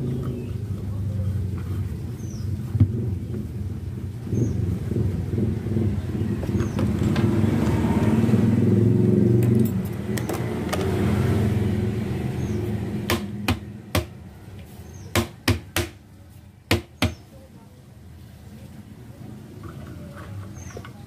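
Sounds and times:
vehicle engine running: 0:00.0 - 0:15.0
sharp knocks: 0:13.1 - 0:14.2.

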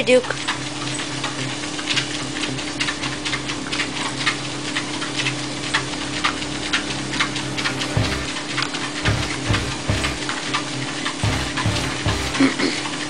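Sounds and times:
treadmill motor hum: 0:07.3 - 0:10.3.

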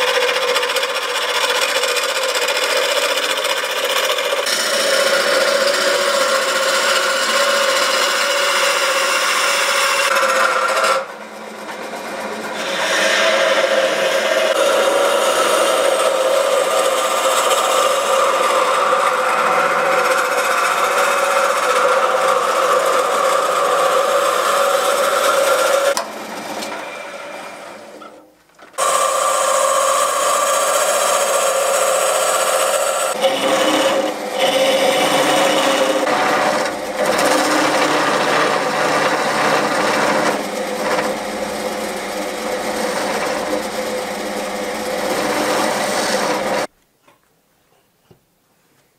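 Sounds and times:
wood lathe whirring: 0:00.0 - 0:46.7
gouge scraping wood: 0:11.7 - 0:26.0, 0:28.8 - 0:46.7.

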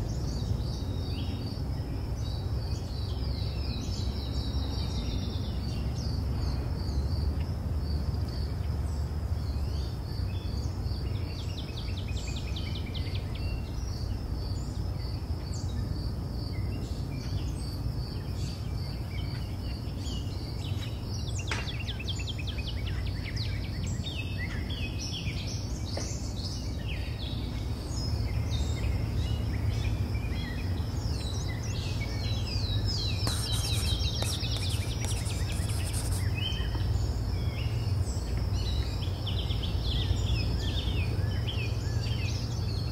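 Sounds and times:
high insect trill: 0:29.8 - 0:39.5
bird chirps: 0:31.2 - 0:37.0.

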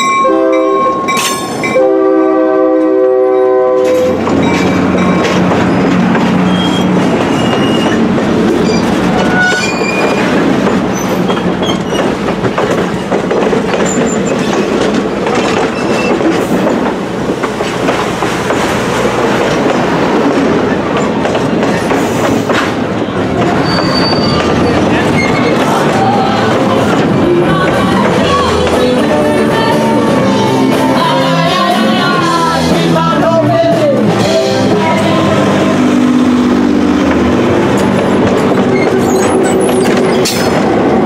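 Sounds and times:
train wheels rumbling on rail: 0:00.0 - 0:41.0
high wheel squeals: 0:03.9 - 0:12.2, 0:23.4 - 0:26.8, 0:38.0 - 0:40.6.

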